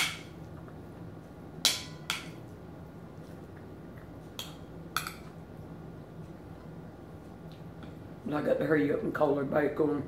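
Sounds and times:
metal spoon clinking on plate: 0:04.4 - 0:05.3.

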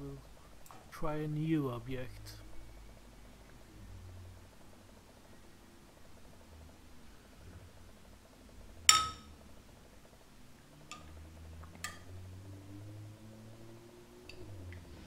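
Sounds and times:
glass tube clinking on glass: 0:08.9 - 0:09.3.

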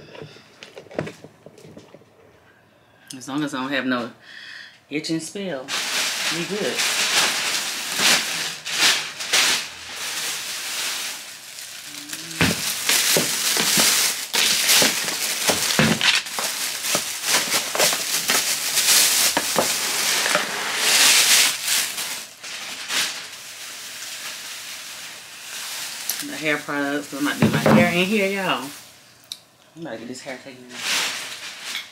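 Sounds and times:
bag and clothes rustling: 0:05.7 - 0:23.2.

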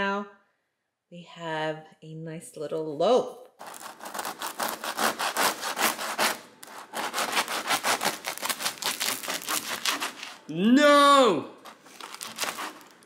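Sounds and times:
knife sawing through bread crust: 0:03.6 - 0:10.5, 0:11.6 - 0:13.0.

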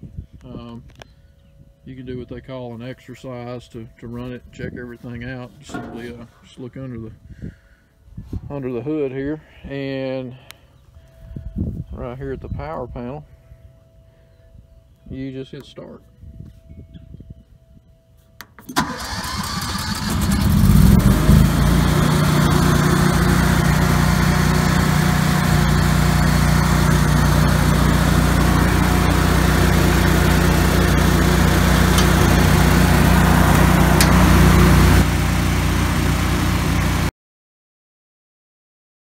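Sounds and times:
generator engine cranking and running: 0:18.7 - 0:37.1.

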